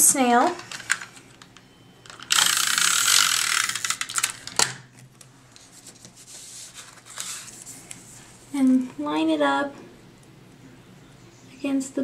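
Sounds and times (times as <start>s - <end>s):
tape dispenser rasping: 2.1s - 4.8s.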